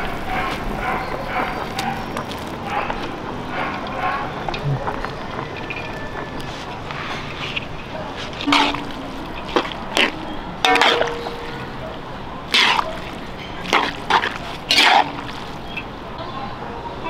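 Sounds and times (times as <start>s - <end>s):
metal spatula scraping wok: 7.5s - 11.8s, 12.5s - 15.8s.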